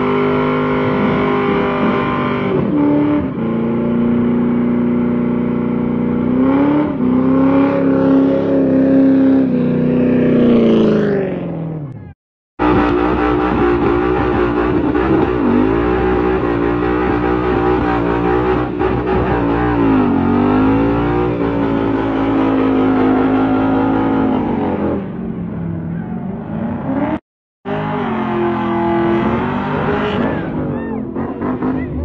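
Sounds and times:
car engine at high revs: 0.0 - 12.0, 12.6 - 25.6, 26.4 - 32.0.

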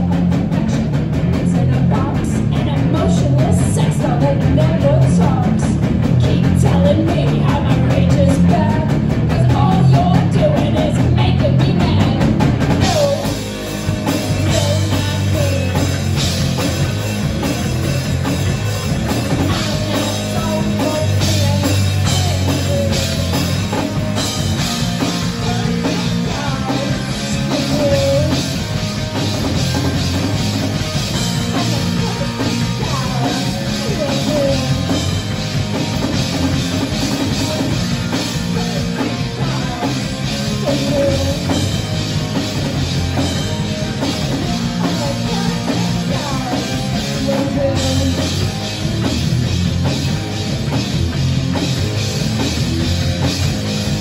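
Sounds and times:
drum kit and cymbals: 0.0 - 54.0
electric bass: 0.0 - 54.0
electric guitar: 0.0 - 54.0
woman singing: 1.3 - 13.4, 14.1 - 16.1, 19.4 - 23.9, 25.0 - 28.6, 31.2 - 35.2, 36.8 - 41.8, 44.6 - 48.5.

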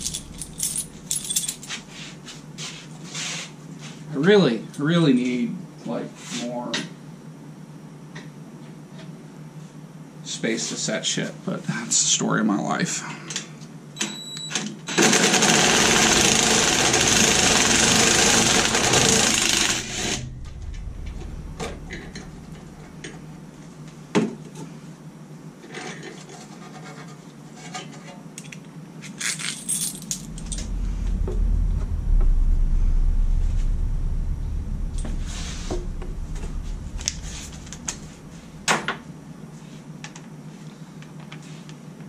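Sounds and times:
low hum: 0.0 - 2.5, 16.4 - 24.1, 29.2 - 39.5.

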